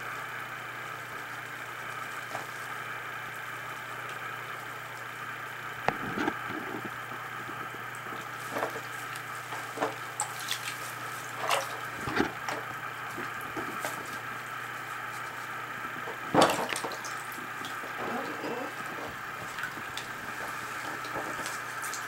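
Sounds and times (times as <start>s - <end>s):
steady low hum: 0.0s - 22.0s
bathwater splashing and dripping: 7.8s - 22.0s.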